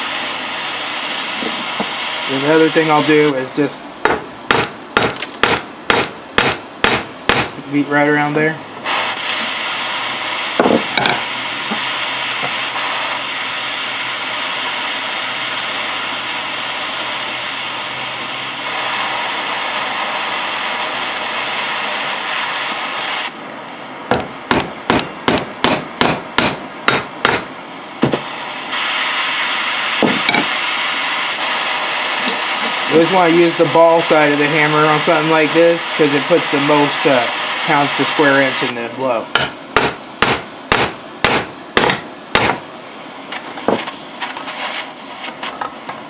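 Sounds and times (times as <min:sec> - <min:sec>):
torch flame hissing: 0:00.0 - 0:46.0
hammer striking metal: 0:04.0 - 0:07.5, 0:24.1 - 0:28.2, 0:39.4 - 0:42.6.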